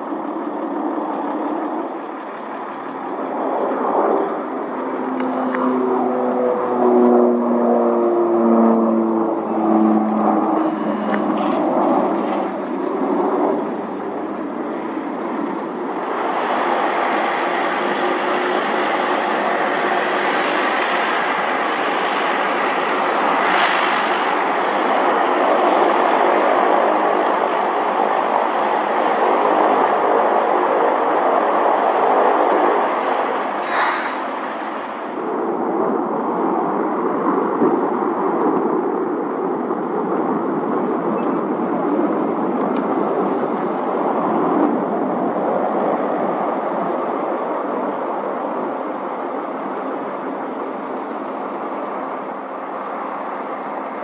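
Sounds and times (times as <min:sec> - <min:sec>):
airplane engine tones stepping down: 0:00.0 - 0:37.3
airplane engine rush with whine: 0:00.0 - 0:54.0.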